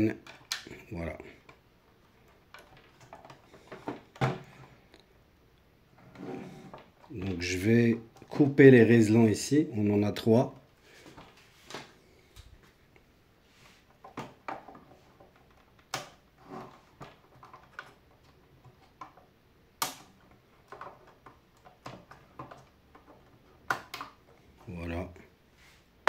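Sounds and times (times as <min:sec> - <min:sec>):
handling wires and plastic housing: 0:01.4 - 0:04.9, 0:13.8 - 0:24.9.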